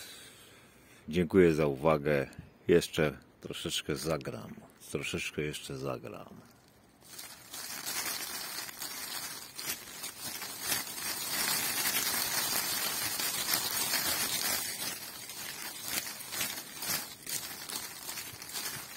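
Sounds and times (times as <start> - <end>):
leaves rustling on shaken twig: 6.4 - 18.9.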